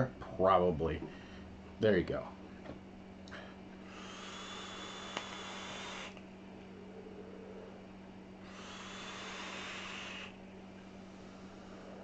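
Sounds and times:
vape coil hissing: 3.9s - 6.2s, 8.5s - 10.4s
vapour blown out: 3.9s - 6.3s, 8.4s - 10.4s
vape click: 5.0s - 6.2s.

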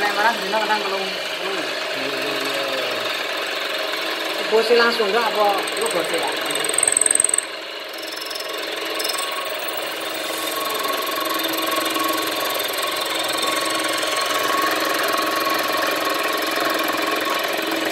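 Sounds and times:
power tool cutting metal: 0.0s - 17.9s.

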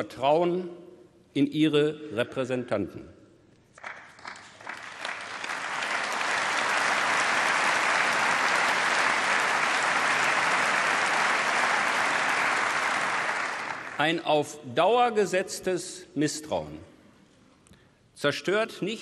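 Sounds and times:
audience applauding: 3.8s - 14.0s.

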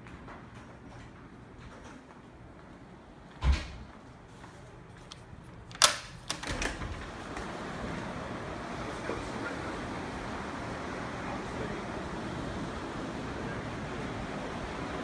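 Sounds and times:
wooden door opening: 5.7s - 7.5s.

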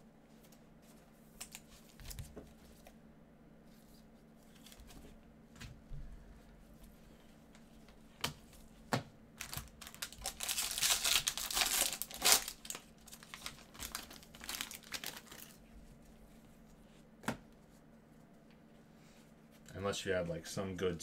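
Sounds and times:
foil wrapper tearing and crinkling: 9.4s - 15.6s.

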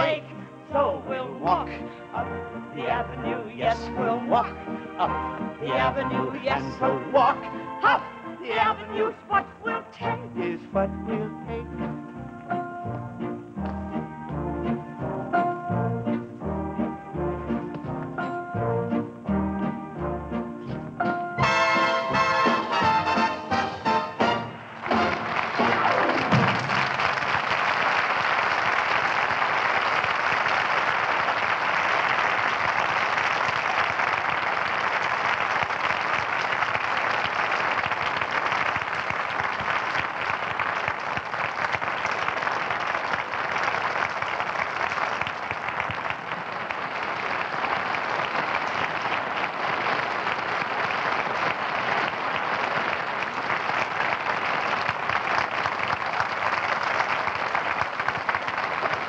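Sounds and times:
audience applauding: 21.4s - 59.0s.

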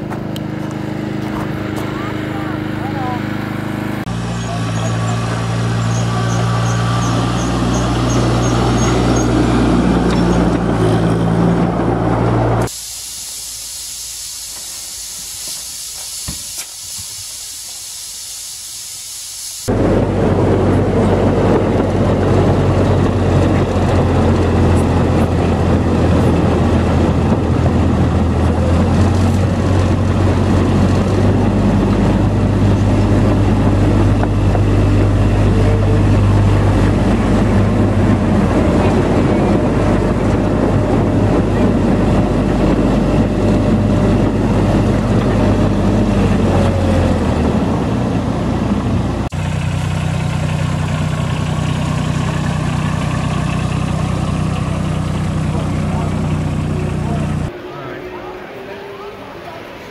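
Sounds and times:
wheels rumbling on track: 0.0s - 12.8s, 19.6s - 59.9s
miniature locomotive engine running: 4.1s - 10.8s, 49.3s - 57.5s.

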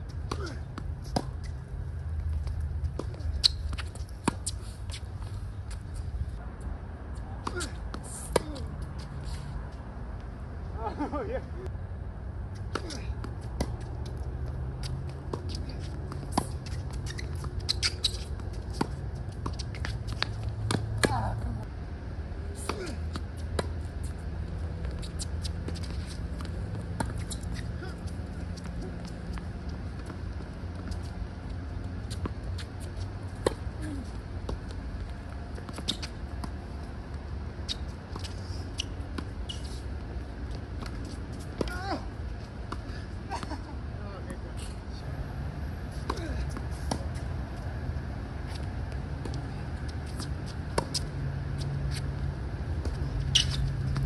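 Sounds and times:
shoe squeaks: 0.1s - 1.8s, 2.4s - 6.1s, 14.8s - 21.4s, 22.6s - 31.2s, 31.9s - 34.8s, 35.6s - 36.6s, 37.6s - 42.9s, 48.4s - 52.2s, 52.8s - 54.0s
rackets striking tennis ball: 12.6s - 21.5s.

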